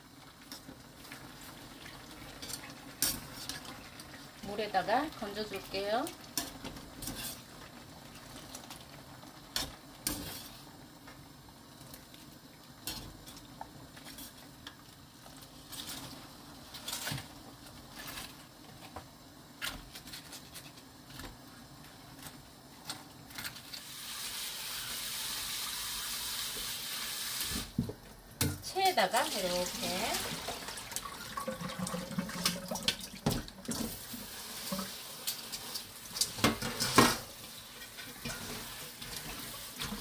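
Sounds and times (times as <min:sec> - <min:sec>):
kitchen tap running: 0:28.7 - 0:40.0.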